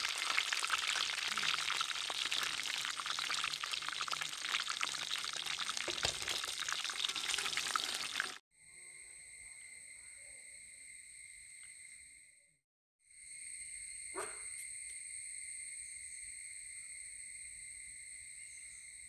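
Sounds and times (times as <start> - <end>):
hot oil sizzling and crackling: 0.0 - 8.4.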